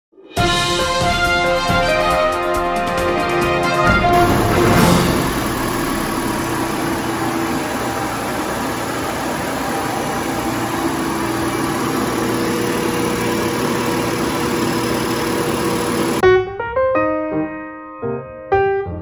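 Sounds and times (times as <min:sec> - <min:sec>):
milling machine cutting wood: 0:04.0 - 0:16.2.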